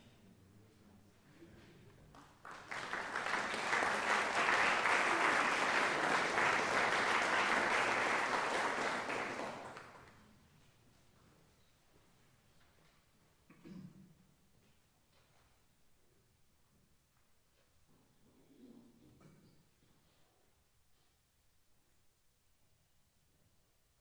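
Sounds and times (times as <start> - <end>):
audience applauding: 2.1 - 10.2.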